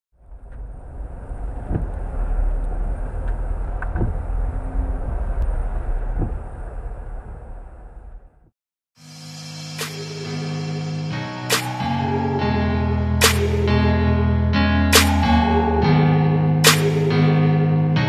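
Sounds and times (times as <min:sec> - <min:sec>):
engine and tyre rumble: 0:00.2 - 0:08.5.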